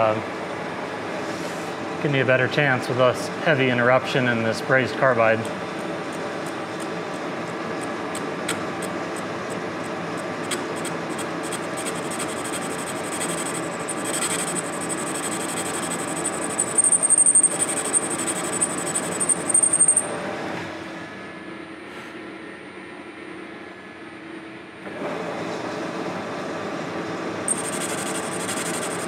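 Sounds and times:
lathe cutting tool ticking: 5.4s - 20.0s, 27.5s - 29.0s
high-pitched squeal from cutting: 10.5s - 20.0s, 27.5s - 29.0s.

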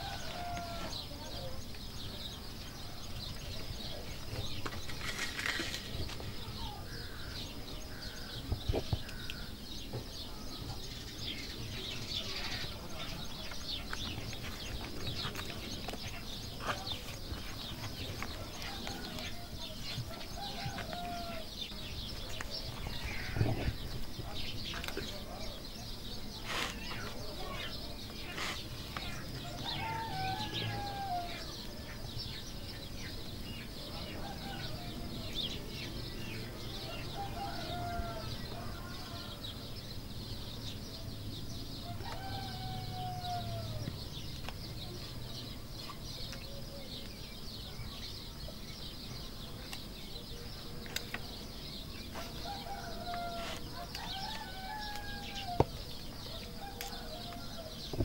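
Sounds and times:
chickens calling: 41.5s - 45.0s, 50.5s - 58.0s.

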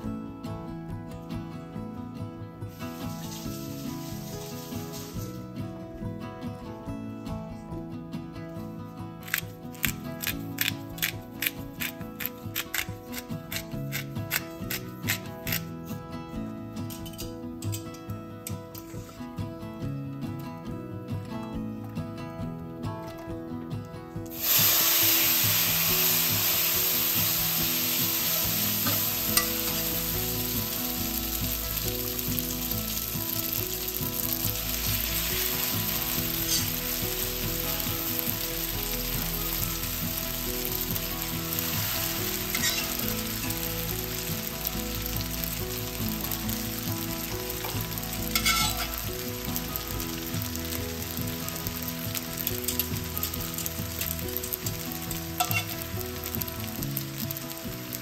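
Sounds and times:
pasta sizzling in butter: 2.7s - 5.6s, 9.2s - 15.8s, 24.3s - 58.0s
tongs clinking against pan: 48.4s - 49.0s, 55.4s - 55.8s.

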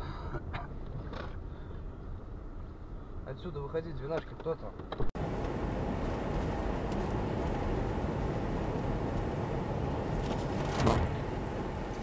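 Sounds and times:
car engine and tyre noise: 0.0s - 12.0s
bump or rustle: 10.2s - 11.3s.

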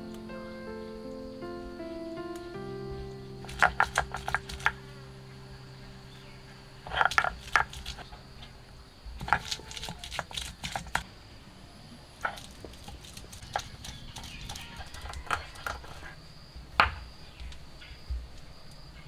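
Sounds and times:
stone roller crushing on stone: 9.2s - 11.0s.

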